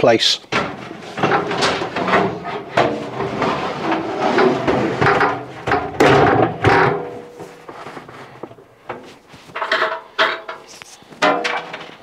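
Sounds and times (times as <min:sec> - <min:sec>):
metal drum clunking in cabinet: 0:00.5 - 0:07.8, 0:11.2 - 0:12.0.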